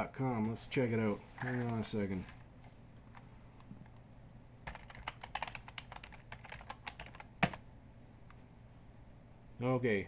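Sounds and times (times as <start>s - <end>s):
computer keyboard typing: 4.7s - 7.6s.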